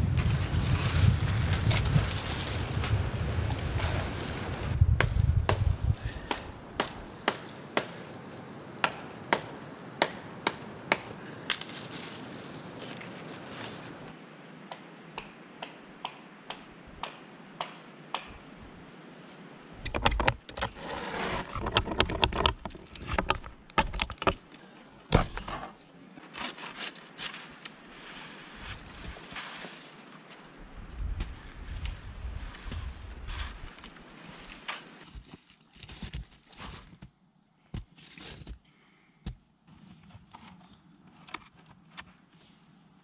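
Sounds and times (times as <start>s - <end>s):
dry branches snapping: 0.1s - 14.1s
rustling: 10.9s - 14.1s, 19.9s - 37.0s.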